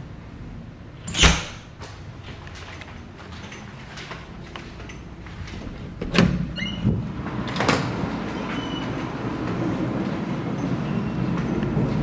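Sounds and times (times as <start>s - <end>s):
door squeak: 1.1s - 1.6s, 6.1s - 7.0s, 8.3s - 9.1s.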